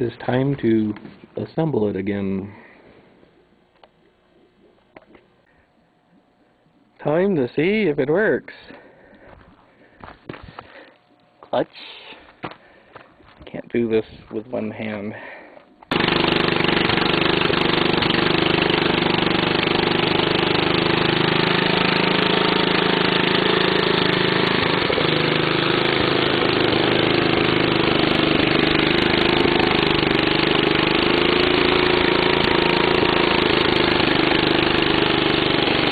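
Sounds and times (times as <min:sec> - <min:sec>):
small engine running steadily: 0:15.9 - 0:35.9.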